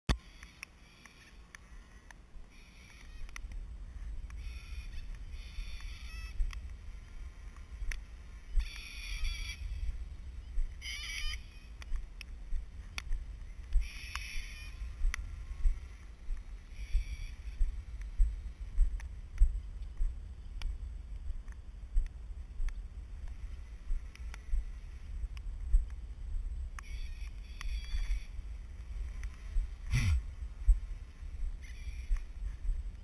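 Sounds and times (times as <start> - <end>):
wavering high-pitched sounds: 29.8 - 30.4.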